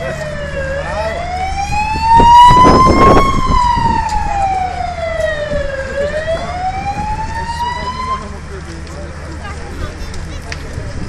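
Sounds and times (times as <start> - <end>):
siren wailing: 0.0 - 8.4
loud rushing noise: 1.6 - 4.4.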